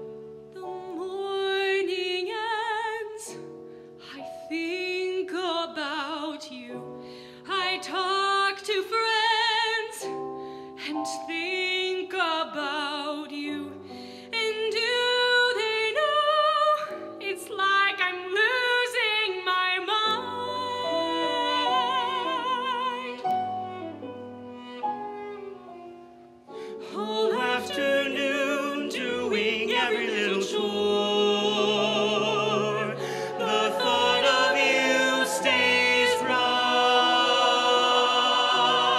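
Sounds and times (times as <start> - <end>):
instrumental accompaniment: 23.0 - 38.9
choir singing: 26.8 - 38.9.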